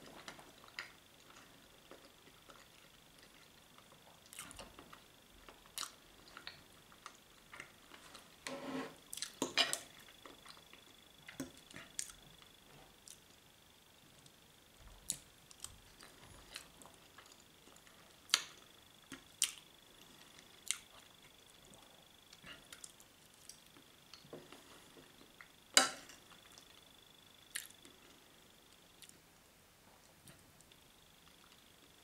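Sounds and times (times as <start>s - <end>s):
faint high-pitched whine: 0.0s - 32.0s
person chewing: 9.1s - 12.2s, 15.0s - 21.7s, 22.3s - 28.2s.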